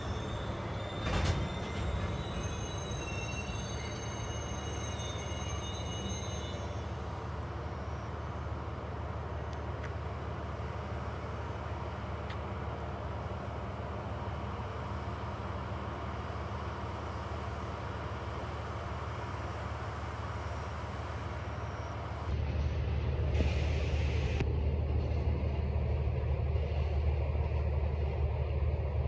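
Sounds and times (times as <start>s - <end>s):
high brake squeal: 0.0s - 8.7s, 21.5s - 22.1s
diesel locomotive idling drone: 0.0s - 29.0s.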